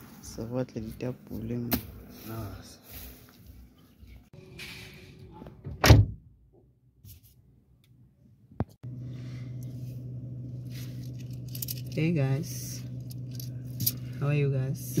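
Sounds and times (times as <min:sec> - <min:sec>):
car engine idling: 0:08.8 - 0:15.0.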